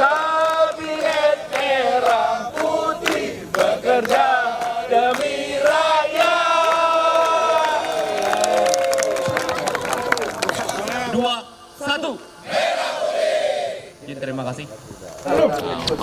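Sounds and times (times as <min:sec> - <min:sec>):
group singing in unison: 0:00.0 - 0:07.9, 0:12.4 - 0:13.8.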